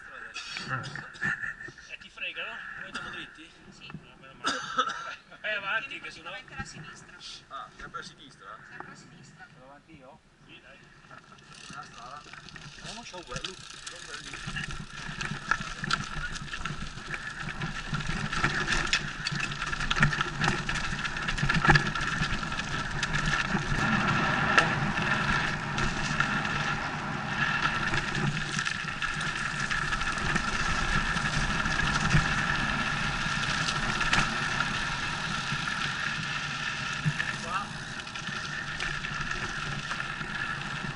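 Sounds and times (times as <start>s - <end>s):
bike clicks and knocks: 11.3s - 26.8s
tyres rumbling on dirt and stones: 11.4s - 40.9s.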